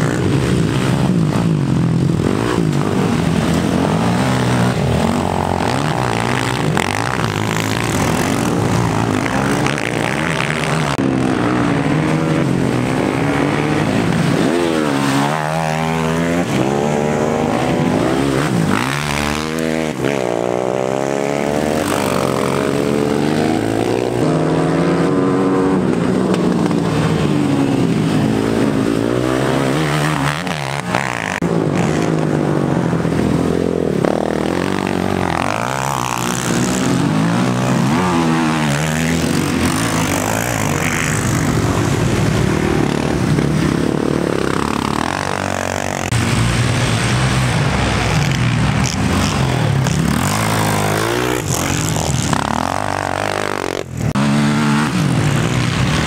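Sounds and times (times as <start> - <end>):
quad bike engines revving: 0.0 - 56.0.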